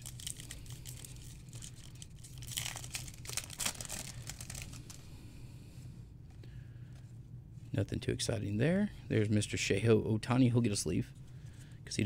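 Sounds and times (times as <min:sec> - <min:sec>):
foil wrapper crinkling and tearing: 0:00.0 - 0:05.0.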